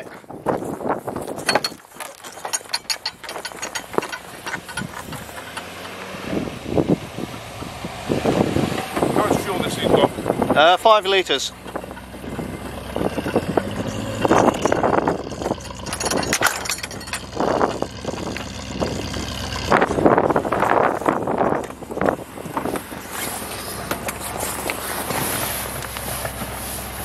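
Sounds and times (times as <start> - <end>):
car engine idling: 2.7 - 27.0
rustling and handling noise: 19.9 - 27.0.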